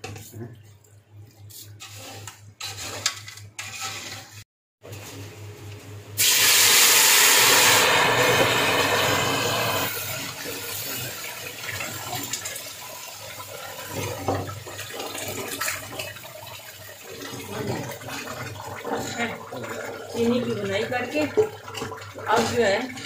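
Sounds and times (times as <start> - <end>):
metal spoon scraping pot: 1.8 - 4.4
liquid hissing in hot oil: 6.2 - 11.2.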